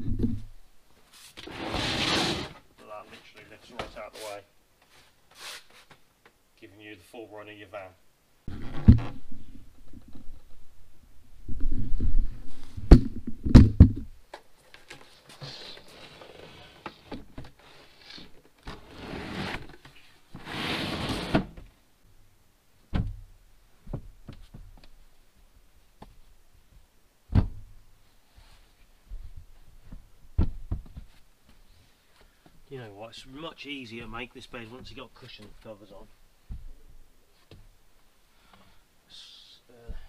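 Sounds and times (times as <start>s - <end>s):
sharp knocks of wooden panels: 27.3s - 27.7s, 30.4s - 31.1s.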